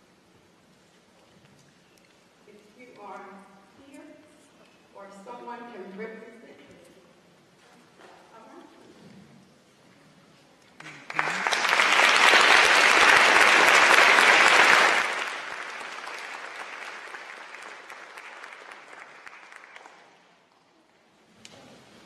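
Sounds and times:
audience applause: 10.8s - 20.3s.

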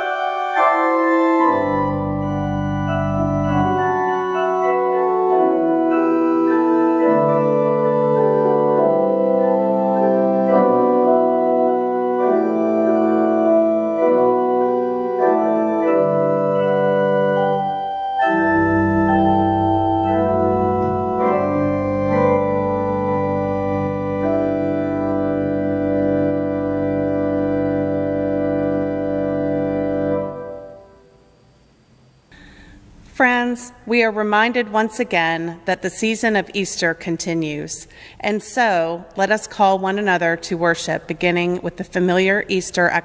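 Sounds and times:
deep organ pedal bass: 0.0s - 31.0s
church organ chords: 0.0s - 31.5s.

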